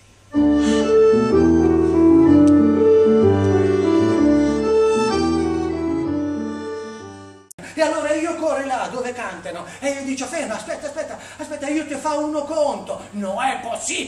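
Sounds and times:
piano accordion melody: 0.3 - 7.6.

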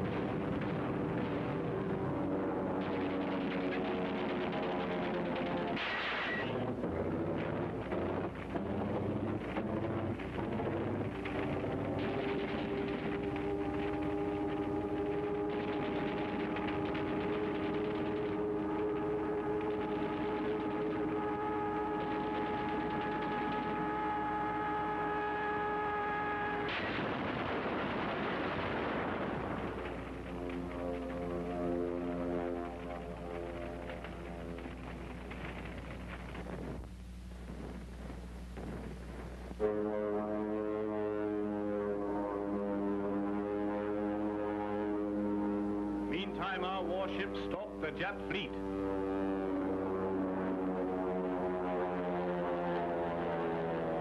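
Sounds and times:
rumbling crackling battle noise: 0.0 - 54.0
hum of held tones: 4.6 - 53.8
low orchestral notes: 29.9 - 34.8.

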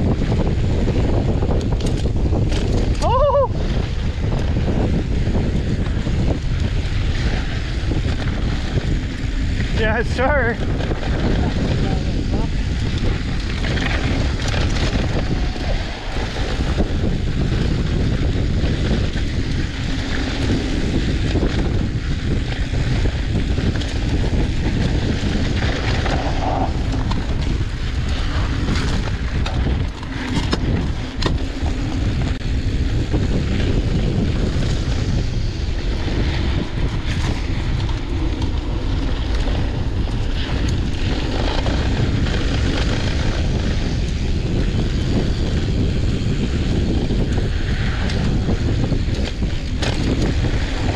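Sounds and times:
bike clicks and knocks: 0.0 - 9.8, 10.7 - 50.9
tyres rolling over dirt: 0.0 - 50.9
wind over microphone: 0.0 - 50.9.

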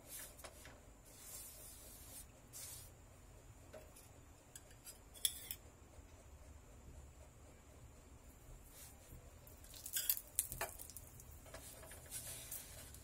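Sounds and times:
metal bowl and spoon clinking: 9.7 - 10.9.

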